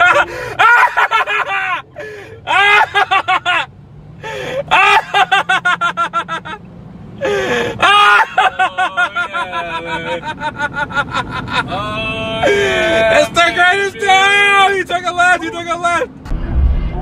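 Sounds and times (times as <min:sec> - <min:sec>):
person laughing high-pitched: 0:00.0 - 0:03.7, 0:04.6 - 0:06.6, 0:07.3 - 0:13.3
car cabin hum: 0:08.3 - 0:17.0.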